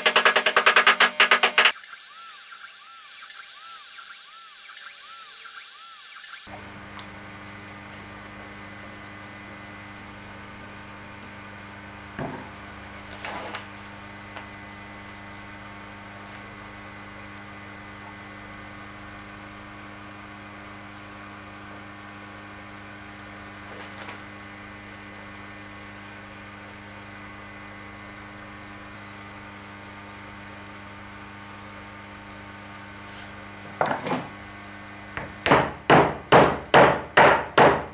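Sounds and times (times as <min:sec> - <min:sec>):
electrical mains hum: 0:00.0 - 0:37.9.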